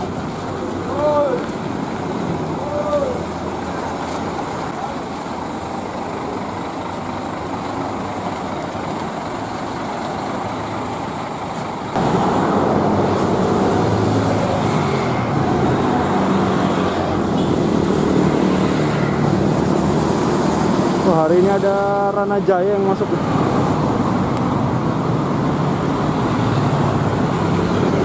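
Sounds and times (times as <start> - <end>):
coach engine running: 0.0 - 22.0
busy road traffic: 0.0 - 28.0
motorcycles passing: 11.9 - 28.0.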